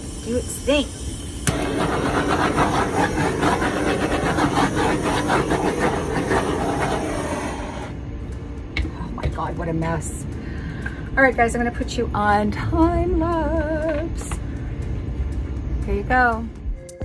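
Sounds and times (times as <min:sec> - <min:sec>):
torch flame hissing: 0:00.0 - 0:08.0
torch clicking on: 0:00.3 - 0:08.0.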